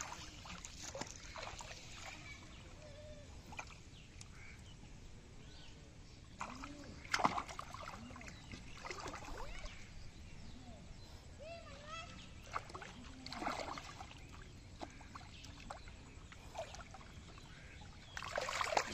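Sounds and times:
faint chirping calls: 0.0s - 18.9s
hands splashing in water: 6.4s - 9.7s, 12.4s - 15.8s, 18.1s - 18.9s.

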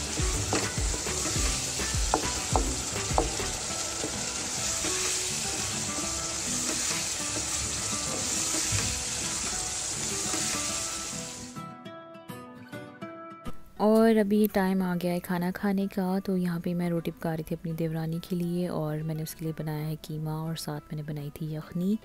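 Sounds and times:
minced meat sizzling in a pot: 0.0s - 11.6s
sharp knocks: 2.1s - 3.5s.

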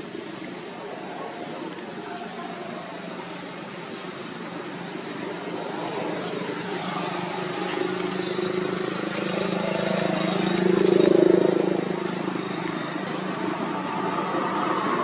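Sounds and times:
engine humming: 1.5s - 15.0s.

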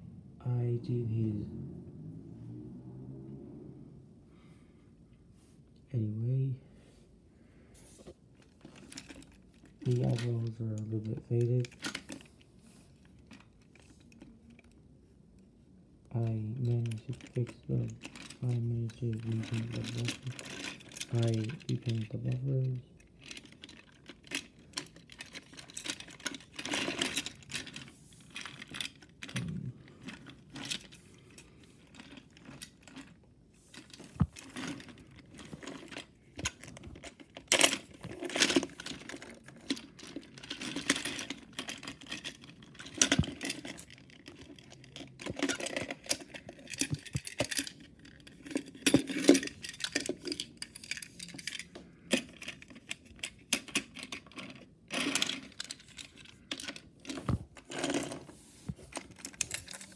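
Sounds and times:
plastic toy train cars clicking: 8.4s - 12.3s, 16.6s - 58.3s, 58.9s - 59.9s.

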